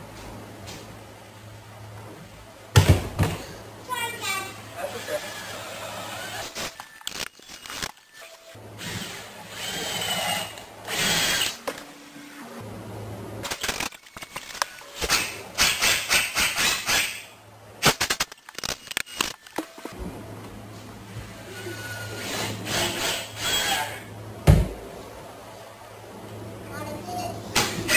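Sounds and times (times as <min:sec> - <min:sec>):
cordless drill running in bursts: 0:08.8 - 0:11.6.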